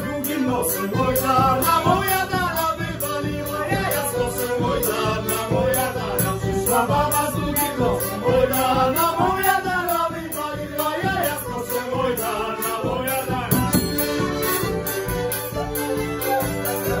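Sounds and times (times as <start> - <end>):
accordion: 0.0 - 17.0
frame drum beating: 0.0 - 17.0
violin melody: 0.0 - 17.0.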